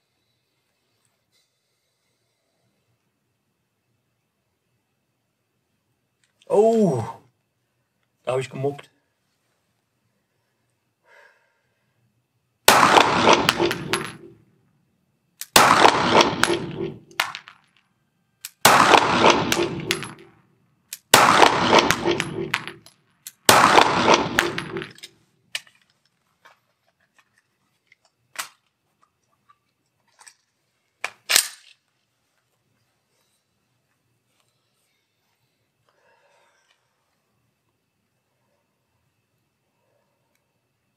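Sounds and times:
pistol shots reverberating: 12.7 - 14.4, 15.5 - 17.5, 18.6 - 20.3, 21.1 - 22.8, 23.4 - 25.0.

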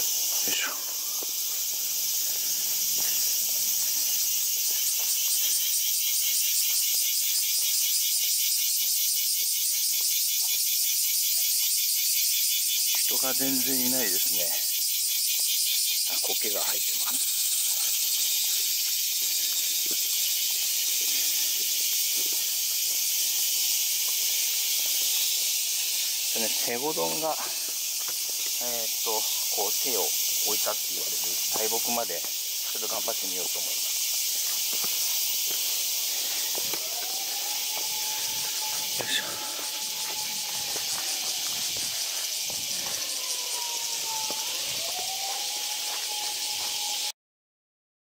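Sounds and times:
cicadas chorus: 0.0 - 47.2
insects buzzing in trees: 0.0 - 47.2
footsteps on stone paving: 1.2 - 5.6, 22.1 - 25.5, 27.6 - 28.6, 33.8 - 43.3, 44.1 - 46.8.

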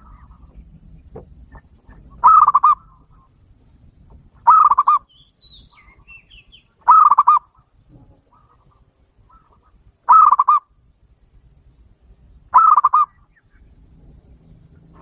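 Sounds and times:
dove rolling coos: 1.9 - 3.2, 4.4 - 5.1, 6.8 - 7.6, 8.2 - 10.7, 12.5 - 13.2.

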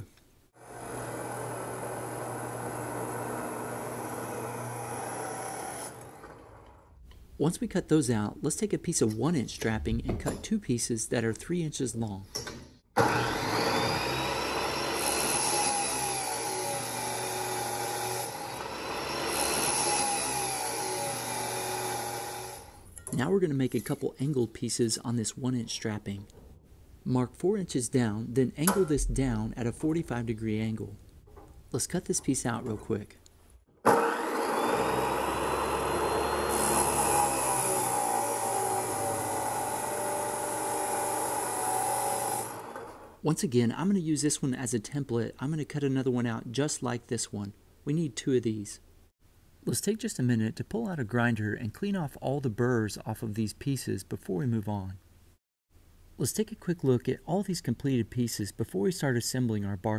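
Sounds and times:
chop saw grinding steel: 0.6 - 6.8, 13.0 - 22.8, 33.8 - 43.1.

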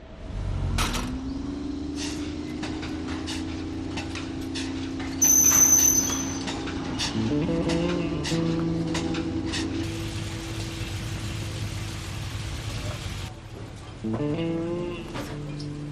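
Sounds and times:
metal gate rattling and clicking: 2.0 - 9.8
high metallic squeal: 4.4 - 7.4.

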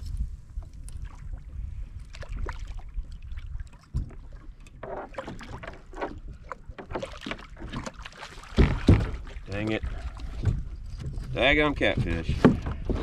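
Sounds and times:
wind rumbling on microphone: 0.0 - 7.8, 8.5 - 13.0
water lapping at a kayak: 0.0 - 13.0
splashing: 0.9 - 11.0
knocks on a kayak: 8.5 - 9.3.

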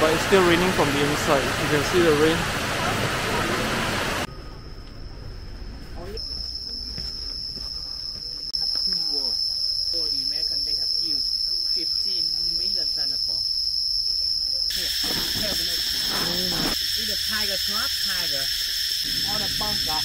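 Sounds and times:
high-pitched insect drone: 4.2 - 20.0.

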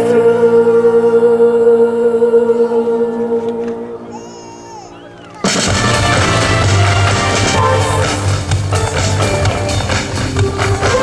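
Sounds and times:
person singing a long note: 0.0 - 4.4
high-pitched calls from audience: 4.0 - 6.7
stage show backing music: 5.1 - 11.0.

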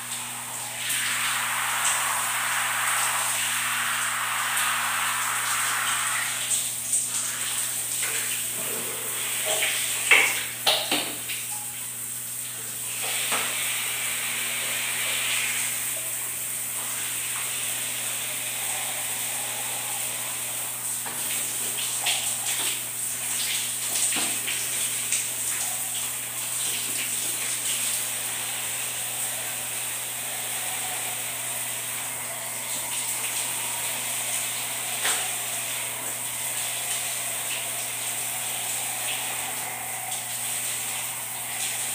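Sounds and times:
shower water spraying: 0.0 - 41.9.

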